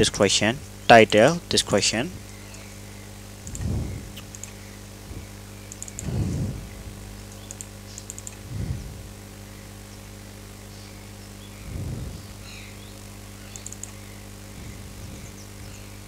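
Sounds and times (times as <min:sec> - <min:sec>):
low electrical hum: 0:00.0 - 0:16.0
low thumps: 0:03.4 - 0:04.2, 0:05.0 - 0:07.4, 0:08.4 - 0:09.2, 0:11.6 - 0:12.4, 0:14.5 - 0:15.8
computer keyboard typing: 0:05.7 - 0:06.1, 0:07.5 - 0:08.4.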